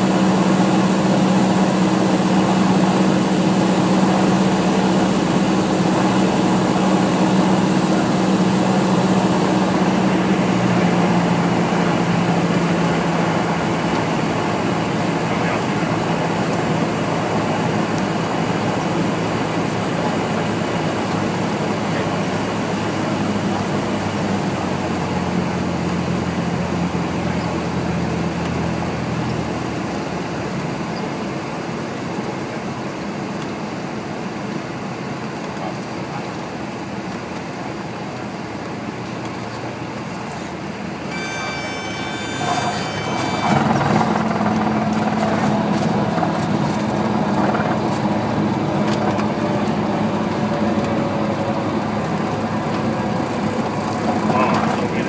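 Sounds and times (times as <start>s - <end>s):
aircraft engine droning: 0.0s - 31.1s, 37.4s - 55.0s
high steady warning tone: 41.1s - 44.9s.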